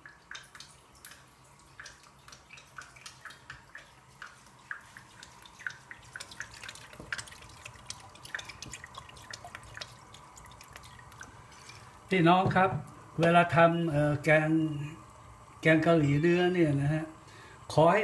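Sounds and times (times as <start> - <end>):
sauce dripping into pot: 0.0 - 12.2.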